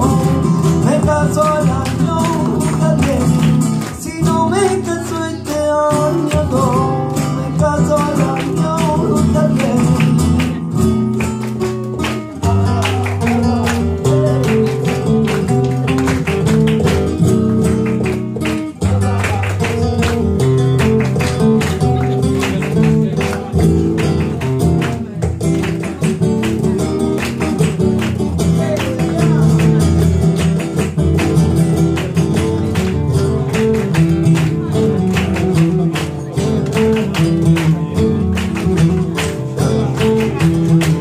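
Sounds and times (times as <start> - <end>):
man singing: 0.0 - 11.4, 12.1 - 15.9, 18.6 - 20.6, 28.3 - 30.4, 31.8 - 41.0
flamenco guitar: 0.0 - 41.0.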